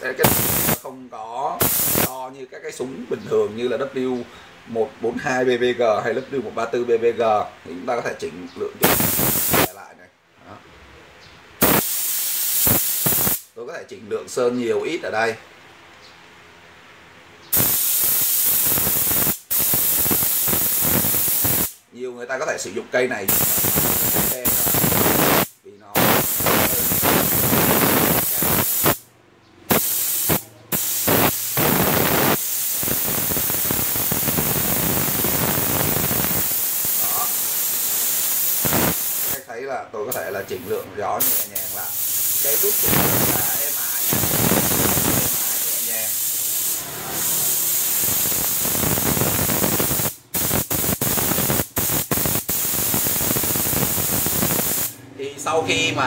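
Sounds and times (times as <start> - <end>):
spray gun hissing air: 0.0 - 0.8, 1.6 - 2.1, 8.8 - 9.8, 11.6 - 13.5, 17.5 - 21.8, 23.3 - 29.0, 29.7 - 39.4, 40.2 - 55.0.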